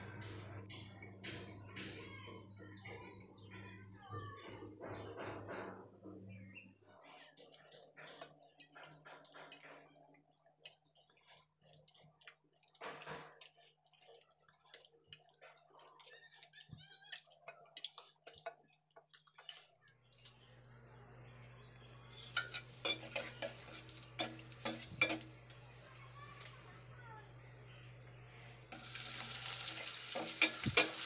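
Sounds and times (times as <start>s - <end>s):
fork scraping in bowl: 6.9s - 18.8s, 22.1s - 25.3s
metal spoon scraping steel pot: 22.1s - 25.4s, 29.0s - 31.0s.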